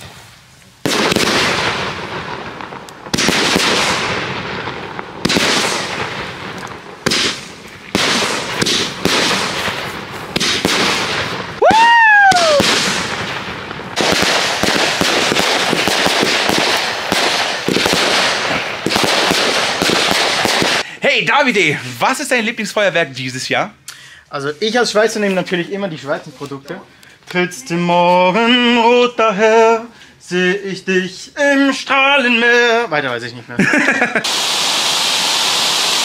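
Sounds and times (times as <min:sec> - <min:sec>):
firework shots: 0:00.0 - 0:21.5, 0:34.2 - 0:36.0
firework crackling: 0:00.0 - 0:23.7, 0:24.3 - 0:32.8, 0:33.8 - 0:36.0
firework whistle rising and falling: 0:11.1 - 0:13.3, 0:34.2 - 0:36.0.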